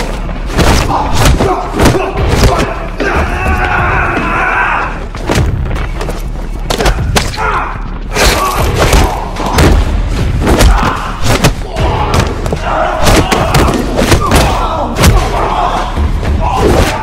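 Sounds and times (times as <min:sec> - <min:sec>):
punch and kick impacts: 0:00.5 - 0:03.6, 0:08.2 - 0:15.5
man shouting and grunting: 0:10.6 - 0:17.0.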